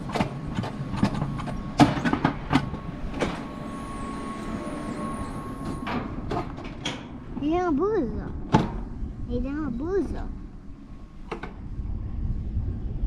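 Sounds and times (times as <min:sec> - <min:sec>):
coaster sled rolling on rails: 0:00.0 - 0:08.9
steady whine: 0:00.0 - 0:13.0.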